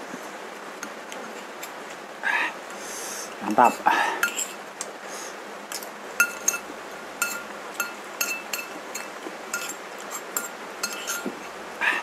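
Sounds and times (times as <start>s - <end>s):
metal spoon clinking on ceramic bowl: 4.2s - 4.5s, 6.2s - 9.8s, 10.4s - 11.3s.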